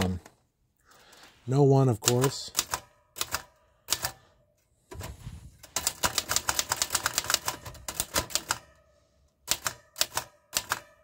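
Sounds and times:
typewriter keystrokes: 0:02.0 - 0:04.2, 0:05.7 - 0:08.6, 0:09.5 - 0:11.0.

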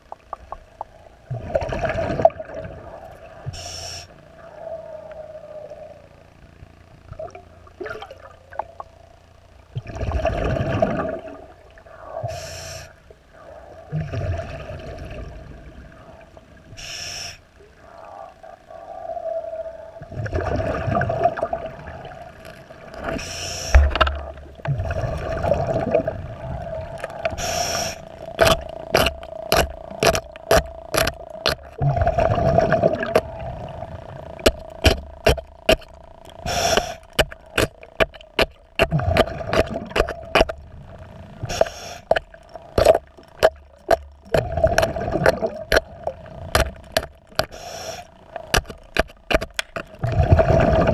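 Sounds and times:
steady hum: 0:00.0 - 0:50.9
exhaled breath bubbling underwater: 0:09.8 - 0:50.9
clicks and scrapes on boat hull: 0:46.6 - 0:50.0.

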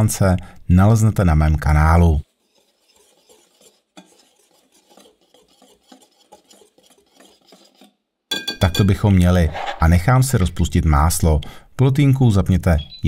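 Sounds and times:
whisk scratching flour in bowl: 0:01.6 - 0:08.0.

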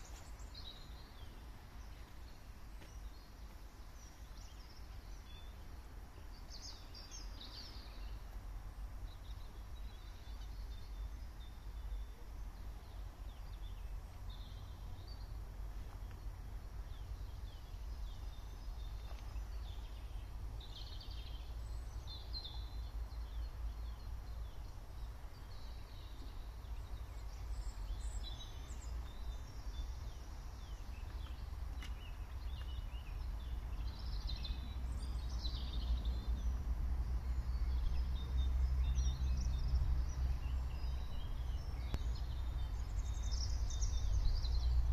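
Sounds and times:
small birds chirping: 0:00.0 - 0:44.9.

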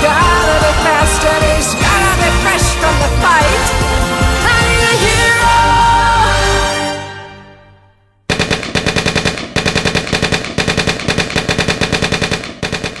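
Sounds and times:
background music: 0:00.0 - 0:08.2
machine-gun sound effect bursts: 0:08.3 - 0:13.0.

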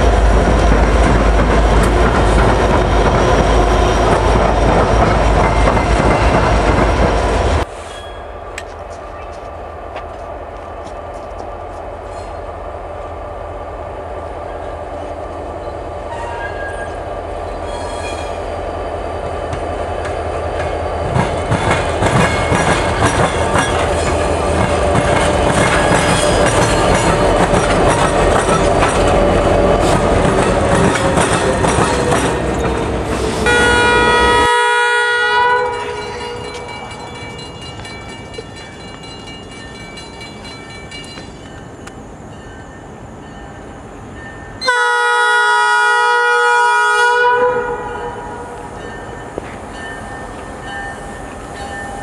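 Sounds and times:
diesel locomotives passing: 0:00.0 - 0:52.0
train horn: 0:33.4 - 0:36.4, 0:44.6 - 0:48.7.

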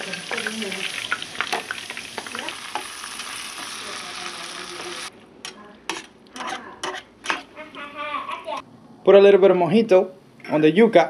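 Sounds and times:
food sizzling in hot oil: 0:00.0 - 0:05.1.

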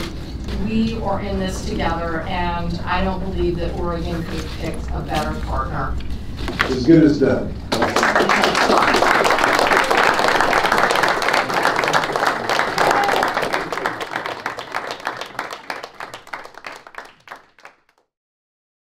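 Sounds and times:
audience applauding: 0:07.7 - 0:18.0.

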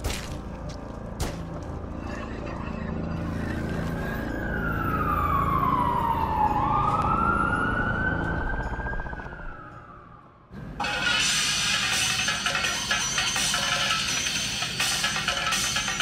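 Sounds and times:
siren wailing: 0:03.4 - 0:10.5
music: 0:10.6 - 0:16.0.

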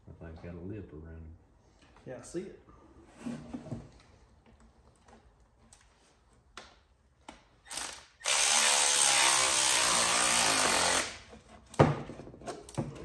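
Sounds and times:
power ratchet whirring: 0:07.7 - 0:11.2.

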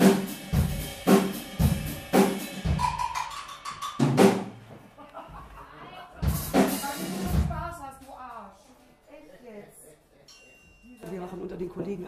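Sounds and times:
drum kit playing slow groove: 0:00.0 - 0:05.0, 0:06.2 - 0:08.2.

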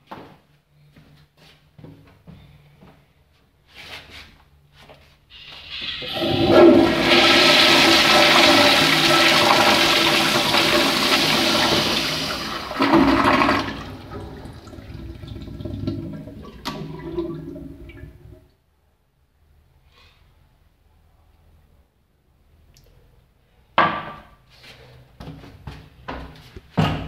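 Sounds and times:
toilet flushing: 0:05.3 - 0:18.5.

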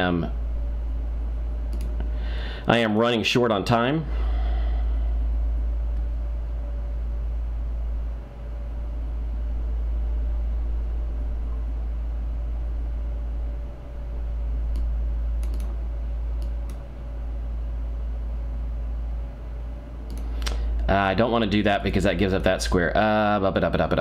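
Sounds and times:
low electrical hum: 0:00.0 - 0:24.0
computer mouse clicks: 0:01.7 - 0:02.1, 0:14.7 - 0:15.8, 0:16.4 - 0:16.9, 0:20.1 - 0:20.6.

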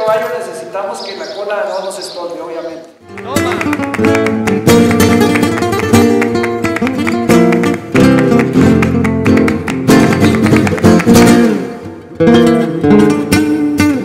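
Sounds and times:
flamenco acoustic guitar: 0:03.0 - 0:14.0.

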